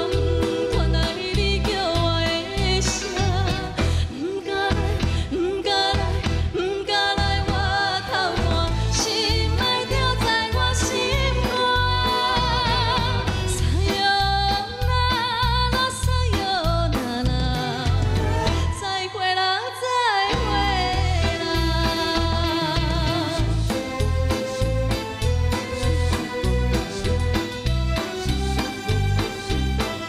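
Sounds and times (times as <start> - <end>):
band backing track with bass beat: 0.0 - 19.0, 20.2 - 30.0
woman singing with vibrato: 0.0 - 23.9.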